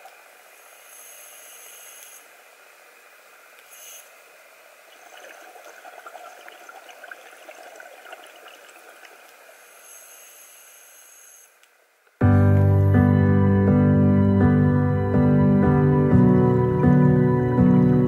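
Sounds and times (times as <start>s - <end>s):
faint crackling and bubbling: 2.3s - 11.0s
underwater hiss: 7.8s - 11.5s
piano music: 12.2s - 18.0s.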